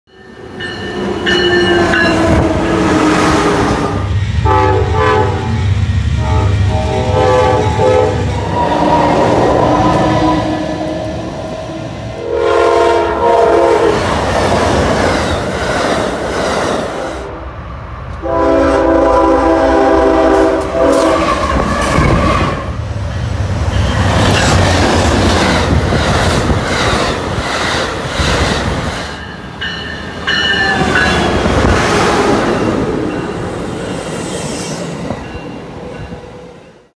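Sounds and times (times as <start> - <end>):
passing train rumble: 0.1 - 36.9
locomotive horn blasts: 1.3 - 14.0, 18.2 - 22.8.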